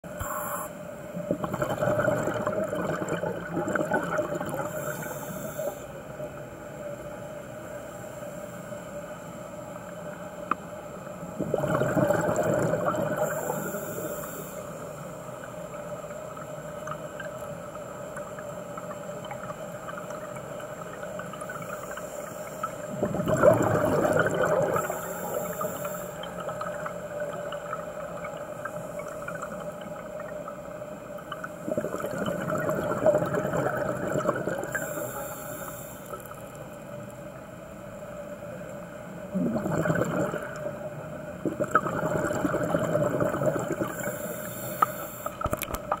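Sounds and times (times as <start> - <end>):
regulator inhalation hiss: 0.2 - 0.8, 4.7 - 5.9, 13.2 - 15.0, 24.8 - 26.3, 34.7 - 36.2, 43.9 - 45.4
exhaled bubbles gurgling underwater: 1.0 - 7.6, 9.8 - 46.0.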